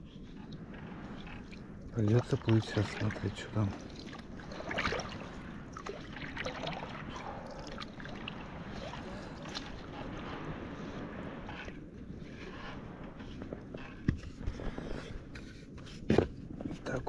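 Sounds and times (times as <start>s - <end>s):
water splashing: 0.4s - 11.8s.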